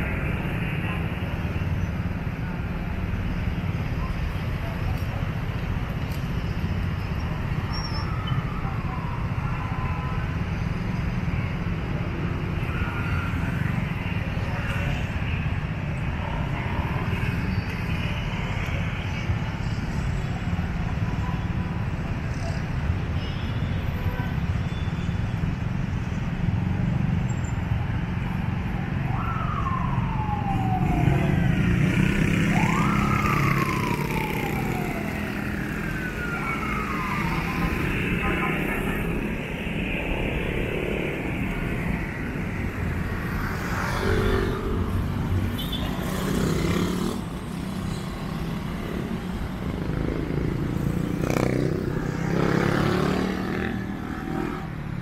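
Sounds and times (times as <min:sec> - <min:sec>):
city street traffic rumble: 0:00.0 - 0:55.0
emergency siren wailing: 0:07.4 - 0:22.5, 0:28.1 - 0:55.0.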